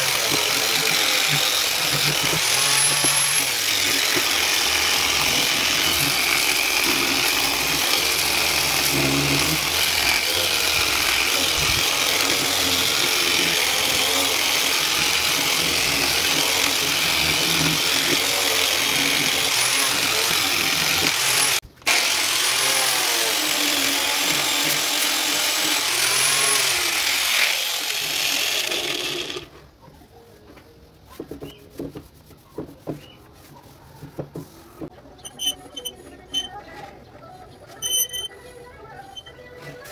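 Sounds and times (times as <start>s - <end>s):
power sander on wood: 0.0s - 29.5s.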